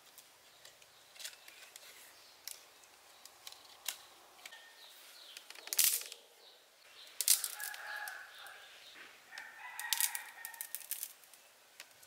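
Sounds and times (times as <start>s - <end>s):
wooden sticks clicking: 5.3s - 6.2s, 7.2s - 8.5s, 9.3s - 12.0s
loud wood crackle: 7.2s - 8.2s, 9.8s - 12.0s.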